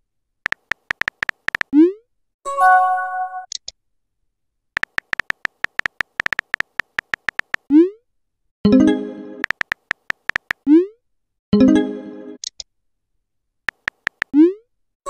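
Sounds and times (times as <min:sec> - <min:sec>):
phone keyboard typing clicks: 0:00.4 - 0:01.7, 0:04.8 - 0:07.7, 0:09.4 - 0:10.6, 0:13.7 - 0:14.4.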